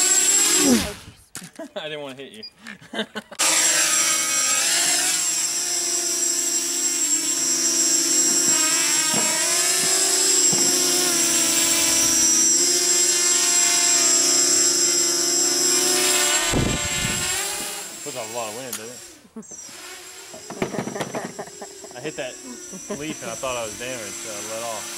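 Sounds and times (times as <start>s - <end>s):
quadcopter motors buzzing: 0.0s - 1.3s, 2.8s - 24.9s.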